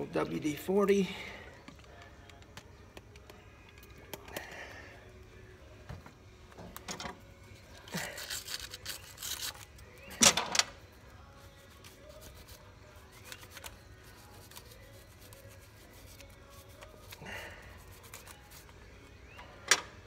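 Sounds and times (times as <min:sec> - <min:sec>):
scratchy scrubbing and rustling: 0:08.0 - 0:09.8.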